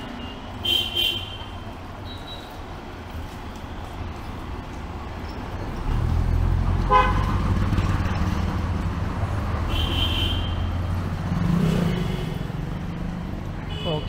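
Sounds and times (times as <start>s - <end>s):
vehicle engine rumbling: 0.0s - 14.0s
car horn toots: 6.9s - 7.3s, 9.7s - 10.6s.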